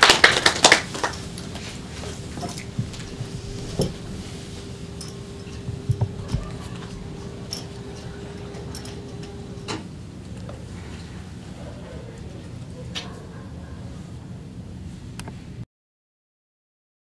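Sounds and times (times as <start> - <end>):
audience seat movements and clicks: 0.0 - 11.1
faint steady hum: 0.0 - 15.6
low thumps: 2.2 - 9.8.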